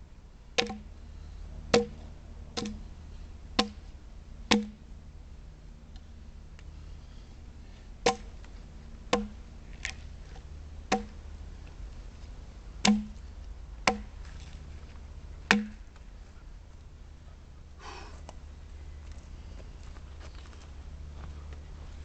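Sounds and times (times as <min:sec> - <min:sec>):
axe chopping wood: 0:00.6 - 0:00.9, 0:01.7 - 0:02.0, 0:02.6 - 0:02.8, 0:03.6 - 0:03.9, 0:04.5 - 0:04.8, 0:08.0 - 0:08.4, 0:09.1 - 0:10.0, 0:10.9 - 0:11.2, 0:12.8 - 0:13.2, 0:13.8 - 0:14.2, 0:15.5 - 0:15.8.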